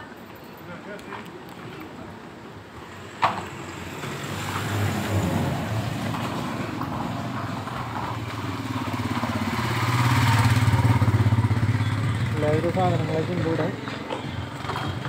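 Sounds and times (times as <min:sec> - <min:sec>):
motorcycle engine running: 0:07.6 - 0:15.0.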